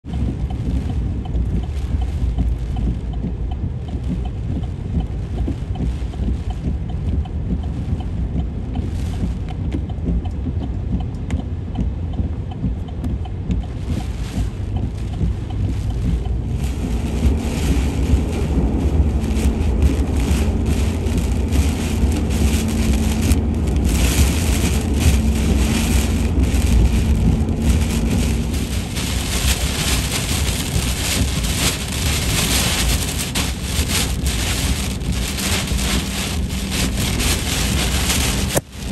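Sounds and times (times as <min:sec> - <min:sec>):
car rumbling on flooded road: 0:00.0 - 0:38.9
hiss of rain and spray: 0:13.7 - 0:38.9.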